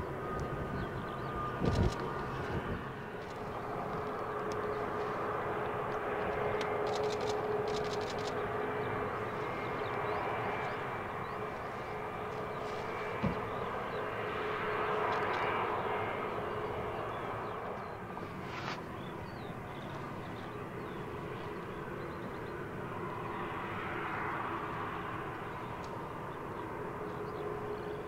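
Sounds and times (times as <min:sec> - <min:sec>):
jet engine whine: 0:00.0 - 0:28.0
faint clicks: 0:05.9 - 0:08.4.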